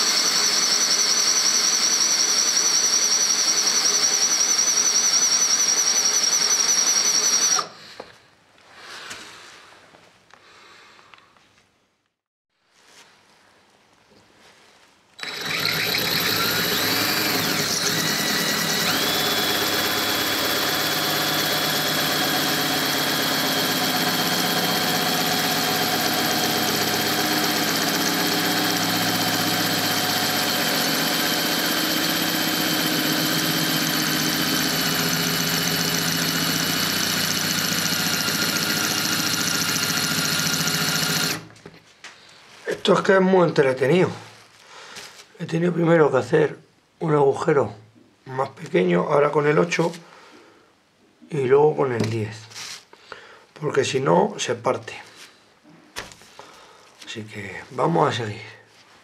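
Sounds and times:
cordless drill grinding glass: 0.0 - 7.7, 15.2 - 41.6
drill squealing: 0.0 - 7.8, 15.2 - 41.6.

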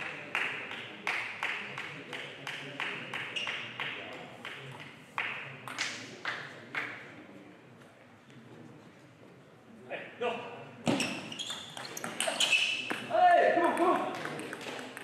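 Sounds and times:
ping pong ball clicking: 13.6 - 15.0.

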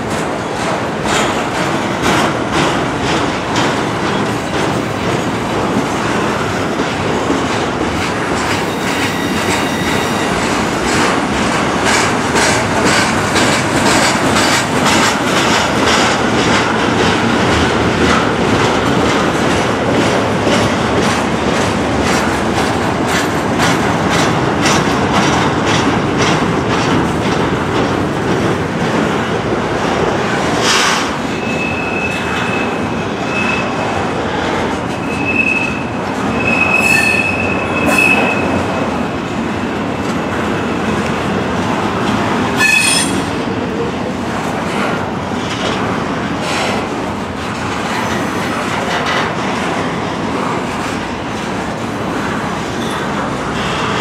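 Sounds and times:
clickety-clack over rail joints: 0.0 - 54.0
train wheels on rails: 0.0 - 54.0
high wheel squeal: 8.6 - 10.5, 31.3 - 33.9, 35.0 - 38.6, 42.6 - 43.3.

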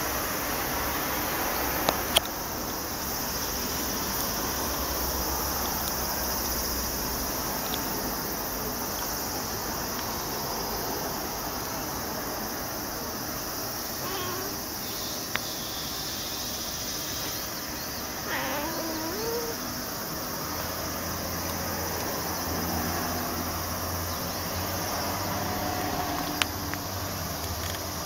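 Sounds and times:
background hiss: 0.0 - 28.0
cat meowing: 14.0 - 14.6, 18.2 - 19.7.

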